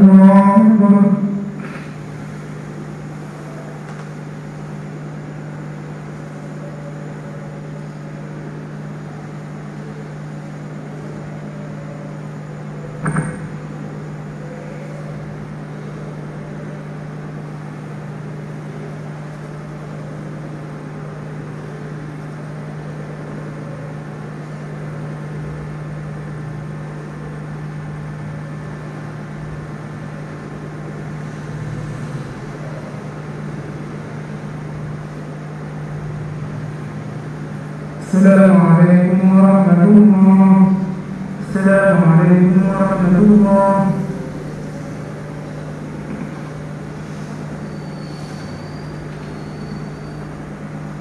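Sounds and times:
steady low hum: 0:00.0 - 0:48.0
man reciting over loudspeakers: 0:38.0 - 0:44.4.

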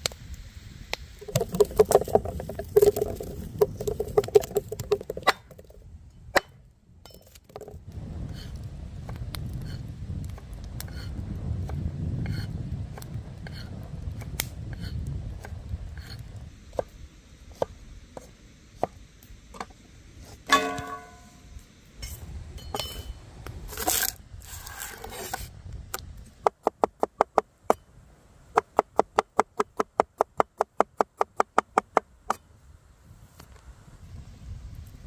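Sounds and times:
ringing metal clink: 0:20.5 - 0:21.4.

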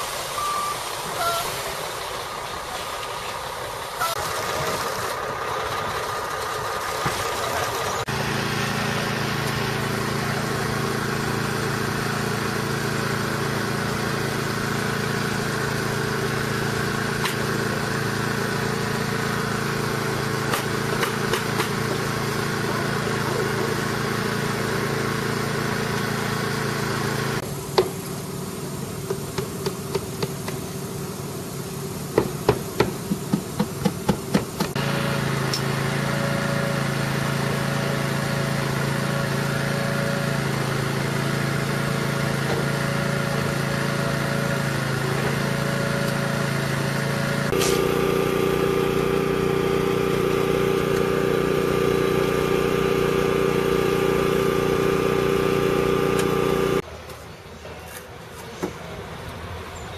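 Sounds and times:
engine droning: 0:01.8 - 0:27.5, 0:34.7 - 0:56.8.

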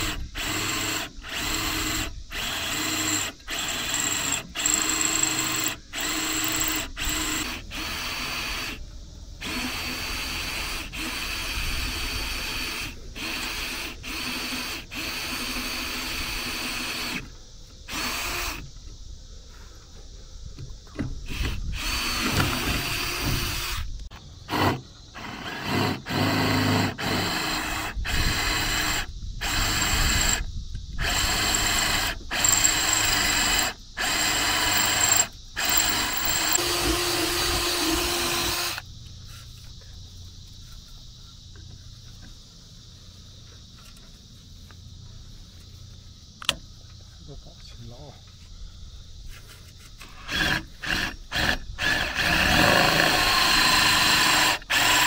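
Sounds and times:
cordless drill boring through metal: 0:00.0 - 0:08.8, 0:09.4 - 0:17.3, 0:17.9 - 0:18.6, 0:21.2 - 0:38.9, 0:50.0 - 0:55.0
insects chirring: 0:00.0 - 0:55.0.

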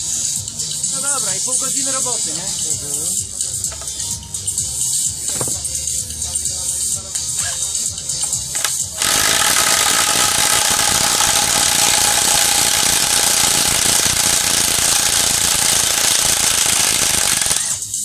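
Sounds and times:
impact wrench hammering: 0:05.3 - 0:05.6, 0:08.2 - 0:17.8.

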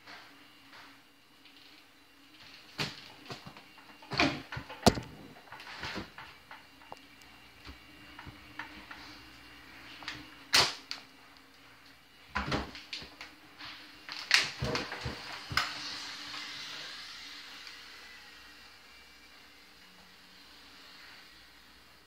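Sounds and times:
soft hiss: 0:15.1 - 0:22.0.

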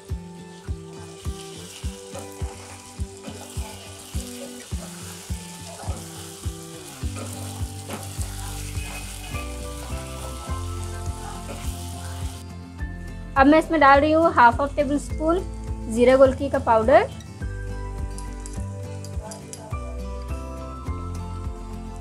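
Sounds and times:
chicken sizzling in hot oil: 0:00.0 - 0:12.4
background music with steady beat: 0:00.0 - 0:22.0
spatula stirring in wok: 0:00.9 - 0:12.4.

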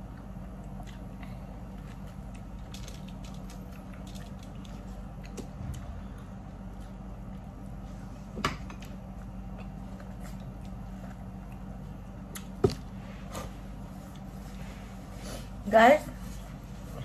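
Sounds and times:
chewing: 0:00.0 - 0:08.1, 0:08.8 - 0:12.5
low hum: 0:00.0 - 0:17.0.

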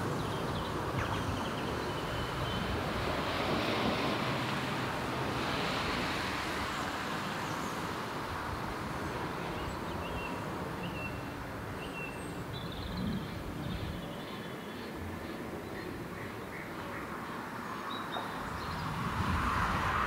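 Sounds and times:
wind noise: 0:00.0 - 0:07.4, 0:08.3 - 0:14.2, 0:18.4 - 0:20.0
high bird chirps: 0:01.0 - 0:02.6.

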